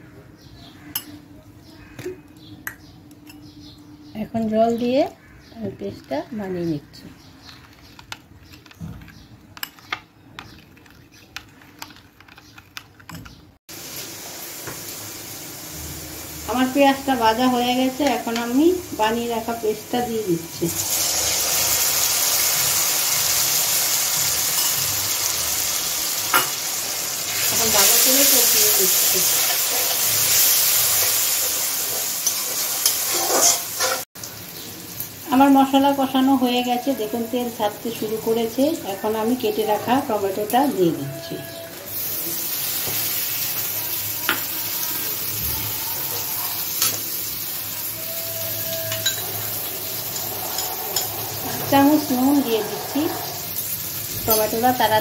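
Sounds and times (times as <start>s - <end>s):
metal spoon stirring in bowl: 7.4s - 13.3s, 27.3s - 34.0s, 48.2s - 53.5s
onions sizzling in oil: 13.7s - 55.0s.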